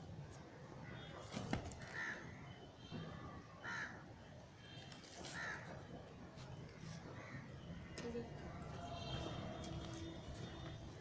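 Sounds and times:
crow cawing: 1.9s - 2.3s, 3.6s - 4.0s, 5.3s - 5.7s.

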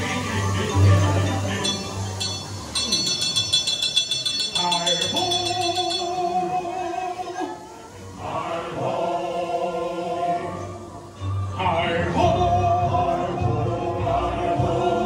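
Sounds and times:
chorus singing with held notes: 0.0s - 15.0s
fast tinkling chimes: 0.3s - 6.6s.

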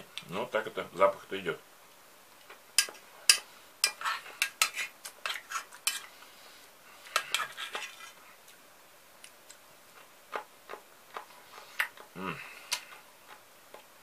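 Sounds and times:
metal spoon scraping pot: 2.8s - 6.1s, 7.1s - 8.2s.

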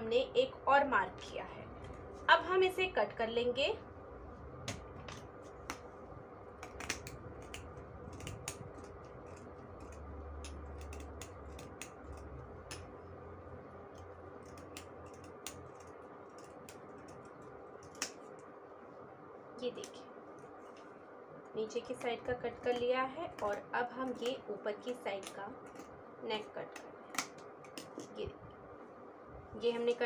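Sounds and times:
scissors snipping fabric: 6.6s - 13.1s, 13.9s - 18.4s, 21.8s - 28.2s.

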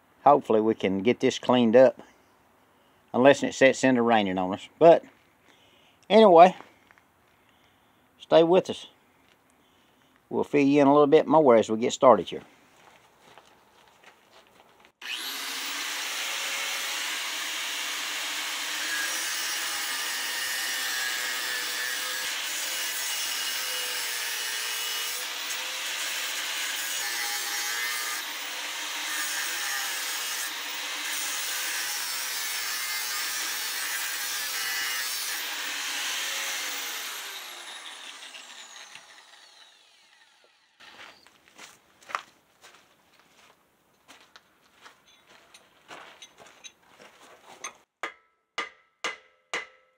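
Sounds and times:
power grinder grinding steel: 15.0s - 41.2s.

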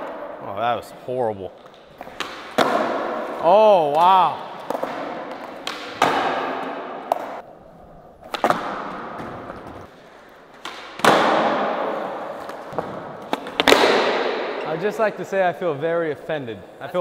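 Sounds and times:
skateboard wheels rolling: 4.5s - 14.4s.

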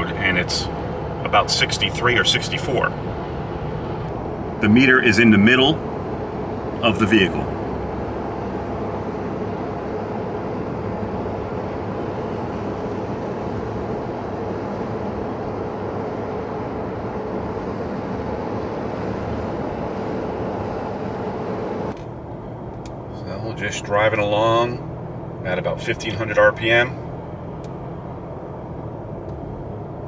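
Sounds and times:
car cabin road noise: 0.0s - 30.0s.

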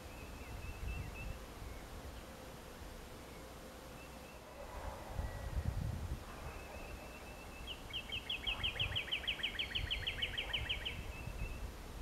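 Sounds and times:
songbird rapid trill: 6.4s - 11.7s.

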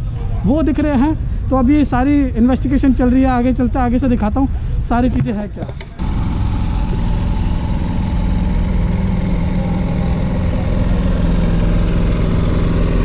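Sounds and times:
engine idling: 6.0s - 13.0s.

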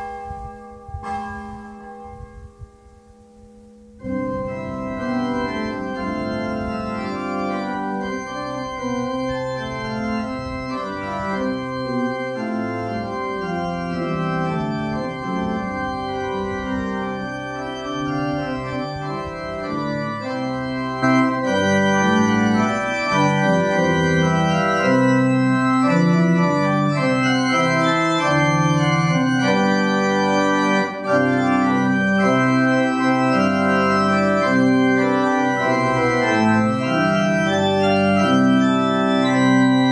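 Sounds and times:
church organ chords: 0.0s - 39.9s.

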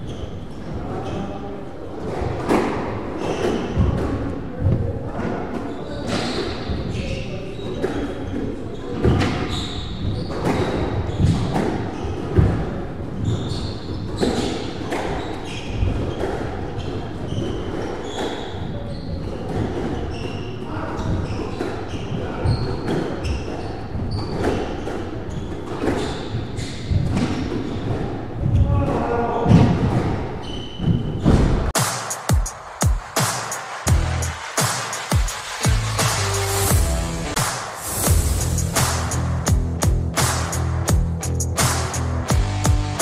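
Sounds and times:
sneakers squeaking on wooden floor: 5.6s - 12.6s, 13.2s - 28.8s, 29.6s - 31.7s
squash ball hitting rackets and walls: 19.3s - 28.1s.

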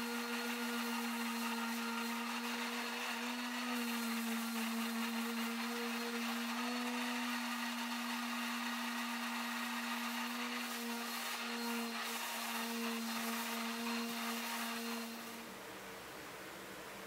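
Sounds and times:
orbital sander on wood: 0.0s - 15.5s.

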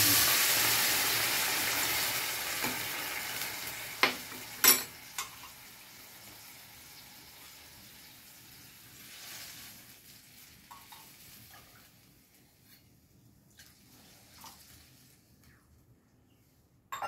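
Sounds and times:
vegetables sizzling in a pan: 0.0s - 12.8s.

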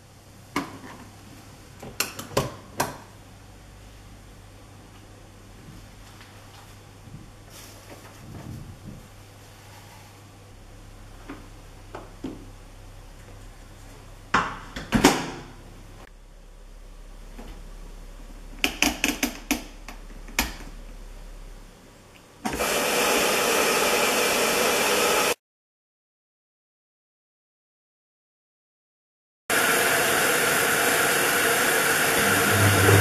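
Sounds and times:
water rushing into drum: 32.2s - 33.0s.

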